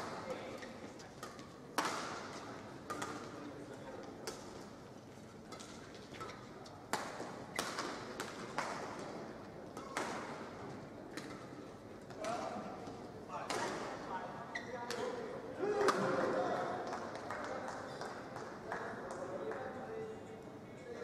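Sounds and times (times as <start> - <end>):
rackets hitting shuttlecock: 1.2 - 3.4, 5.5 - 14.0
shoes squeaking on court: 14.5 - 15.2.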